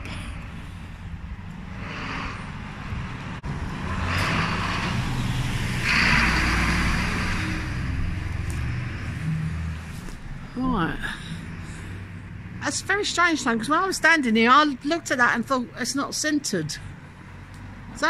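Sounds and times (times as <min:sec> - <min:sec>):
car driving past: 0:01.6 - 0:12.6.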